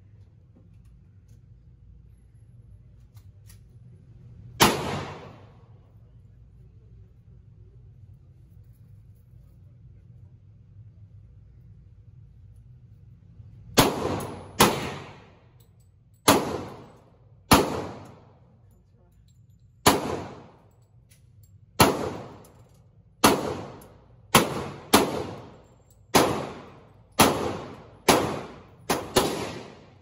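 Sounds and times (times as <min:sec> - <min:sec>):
handgun shots echoing indoors: 0:04.4 - 0:05.7, 0:13.7 - 0:18.9, 0:19.5 - 0:30.0.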